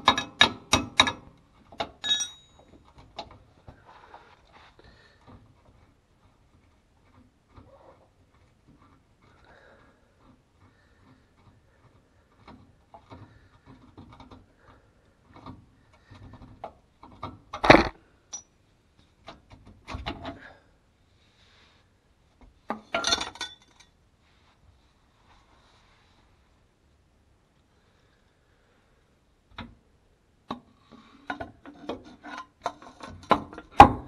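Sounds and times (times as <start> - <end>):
metal tools clinking and knocking: 0.0 - 3.0, 17.6 - 18.5, 22.8 - 24.0
sharp metal clank: 2.0 - 2.6.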